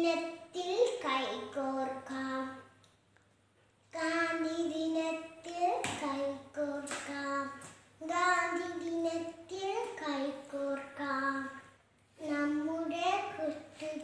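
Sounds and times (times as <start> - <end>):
girl singing unaccompanied: 4.0 - 14.0.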